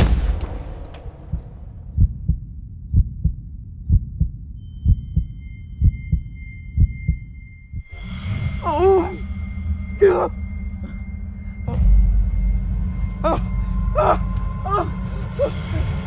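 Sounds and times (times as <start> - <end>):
heartbeat thumps: 0.0 - 7.9
wavering tone: 4.6 - 14.1
low drone: 4.6 - 16.0.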